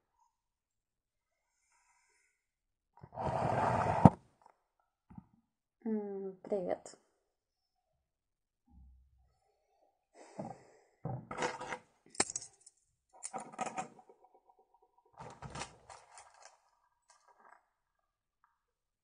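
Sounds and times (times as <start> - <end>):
wrapper crinkling: 15.3 - 17.6.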